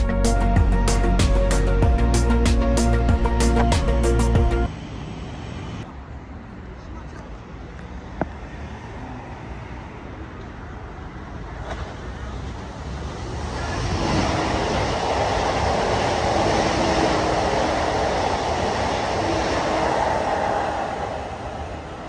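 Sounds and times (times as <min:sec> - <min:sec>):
electric train passing: 0:00.0 - 0:06.0, 0:11.1 - 0:22.0.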